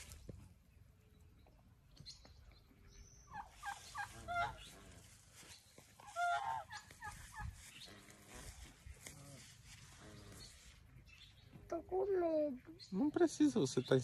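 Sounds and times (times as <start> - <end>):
fowl calling: 3.3 - 5.2, 6.0 - 10.6.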